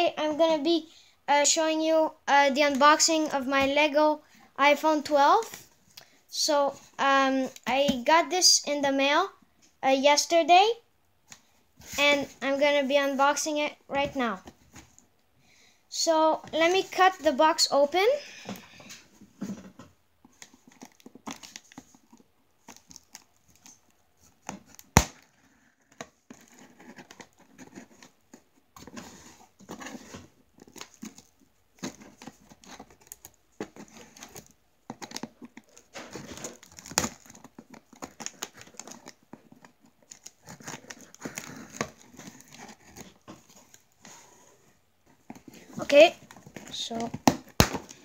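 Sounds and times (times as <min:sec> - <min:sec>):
packing tape tearing on cardboard: 0:28.8 - 0:44.0.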